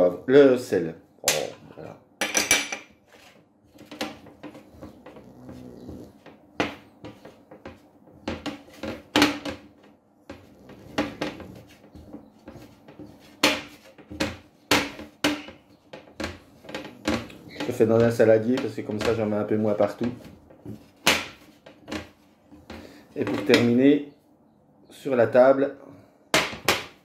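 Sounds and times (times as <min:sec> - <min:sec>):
knocks and clinks on glass bowl: 0:02.2 - 0:02.9.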